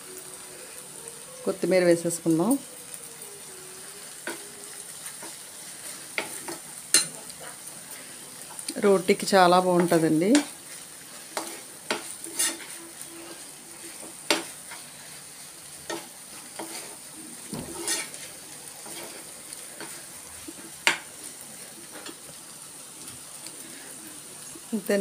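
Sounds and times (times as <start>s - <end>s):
food sizzling in a frying pan: 0.0s - 25.0s
spoon clinking and scraping pan: 6.1s - 7.6s, 11.3s - 14.8s, 17.7s - 18.2s.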